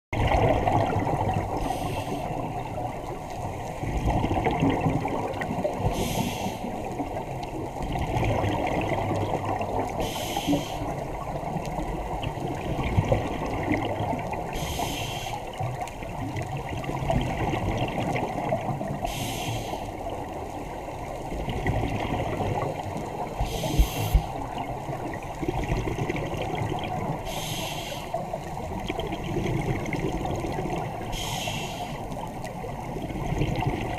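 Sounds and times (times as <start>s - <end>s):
underwater bubbling: 0.1s - 33.9s
diver breathing through regulator: 1.6s - 2.4s, 5.9s - 6.8s, 10.0s - 11.0s, 14.5s - 15.5s, 19.0s - 19.9s, 23.4s - 24.4s, 27.2s - 28.2s, 31.1s - 32.1s.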